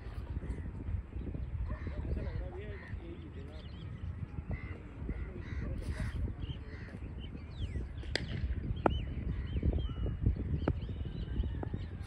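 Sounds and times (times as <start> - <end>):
birds calling: 0.0 - 12.0
cricket bat striking ball: 8.0 - 9.2.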